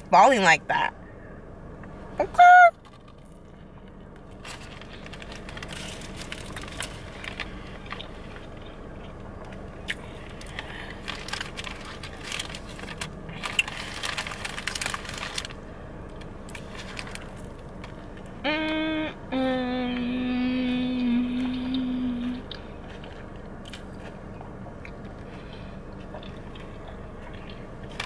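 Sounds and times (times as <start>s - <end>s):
faint steady hum: 0.0s - 28.0s
chewing and crunching: 2.8s - 18.4s, 21.4s - 28.0s.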